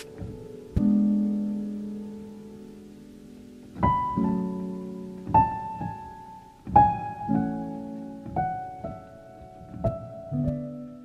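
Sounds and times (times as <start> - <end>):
slow piano music: 0.0 - 11.0.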